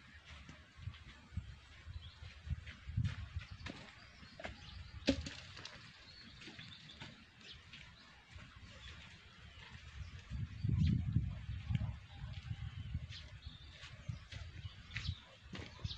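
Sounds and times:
low rumble on microphone: 9.5s - 15.0s.

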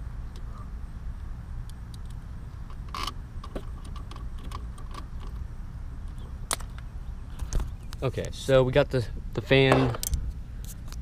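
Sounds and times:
steady low rumble: 0.0s - 11.0s
small bolts clicking: 1.6s - 5.4s, 9.9s - 10.2s.

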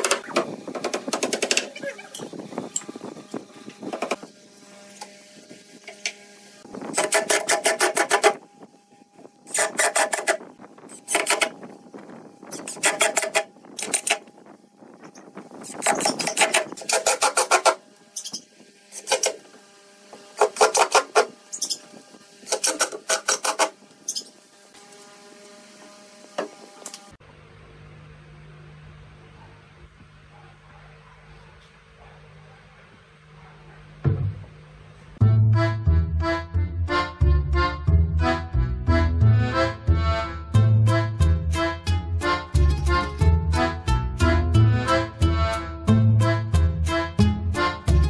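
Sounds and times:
impact driver bursts: 15.7s - 19.5s.

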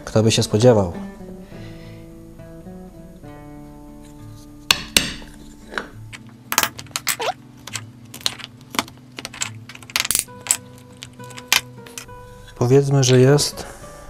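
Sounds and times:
acoustic guitar music: 0.0s - 14.0s
carving tools clicking and knocking: 6.2s - 12.1s.

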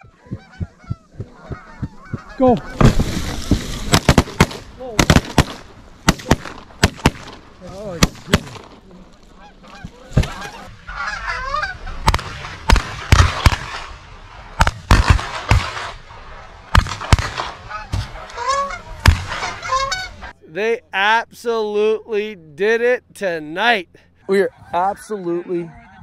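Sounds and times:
geese honking: 0.0s - 4.4s, 8.8s - 13.9s, 17.3s - 22.2s, 23.6s - 26.0s
shotgun shots: 2.7s - 8.8s, 12.0s - 16.1s, 16.7s - 18.2s, 19.0s - 19.6s.

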